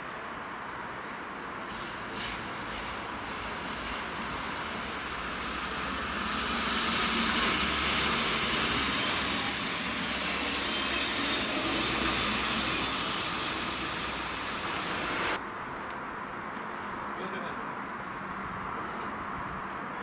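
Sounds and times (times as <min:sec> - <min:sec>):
train rolling on rails: 0:00.0 - 0:15.4
high hiss: 0:01.8 - 0:15.4.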